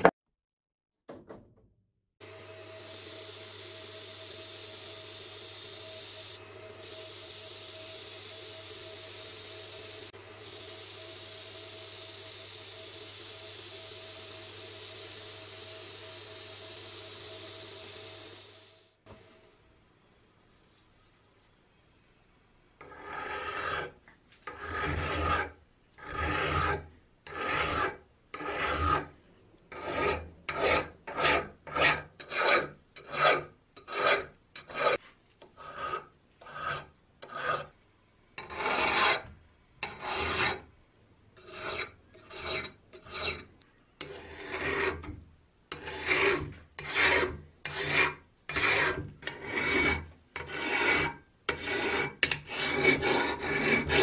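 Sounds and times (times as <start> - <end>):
hand file rasping on metal: 22.8 - 29.1, 29.7 - 37.7, 38.4 - 40.7, 41.4 - 54.0.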